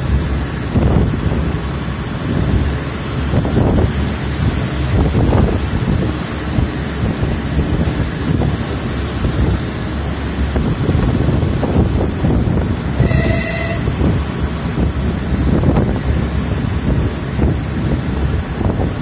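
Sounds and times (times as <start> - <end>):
train rumbling on track: 0.0 - 19.0
wind buffeting microphone: 0.0 - 19.0
brief high tone: 12.9 - 14.0.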